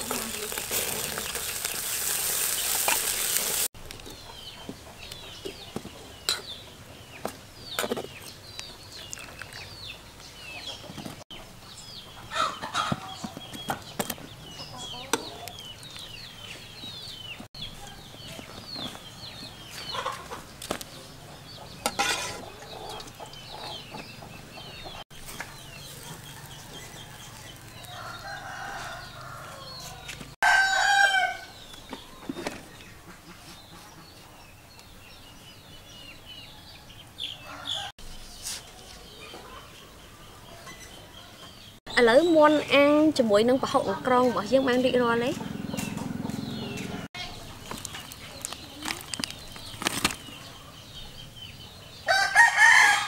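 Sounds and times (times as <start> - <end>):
chickens clucking: 0.0 - 8.4, 12.1 - 15.8, 17.6 - 30.3, 31.9 - 34.5, 43.7 - 52.2
small birds chirping: 0.0 - 30.4, 31.5 - 52.4
rooster crowing: 26.1 - 31.6, 36.7 - 37.9, 52.0 - 53.0.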